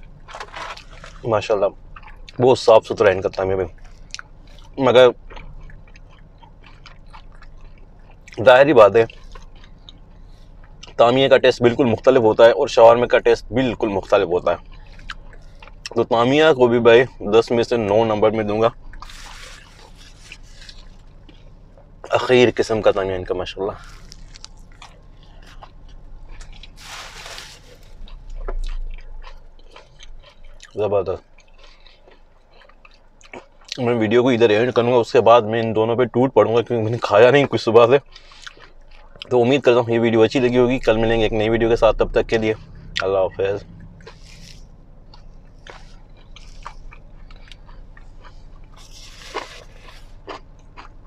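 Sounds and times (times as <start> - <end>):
person chewing: 0.0 - 2.4, 3.2 - 11.0, 13.7 - 16.3, 17.0 - 33.9, 36.6 - 39.7, 42.3 - 51.0
paper wrapper rustling: 19.0 - 21.1, 26.7 - 28.1.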